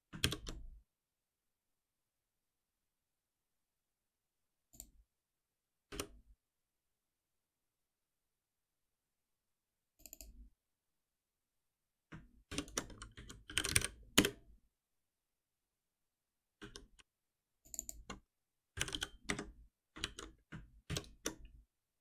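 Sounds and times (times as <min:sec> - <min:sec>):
computer keyboard typing: 0:00.1 - 0:00.6, 0:12.5 - 0:14.4, 0:16.6 - 0:17.1, 0:18.8 - 0:21.5.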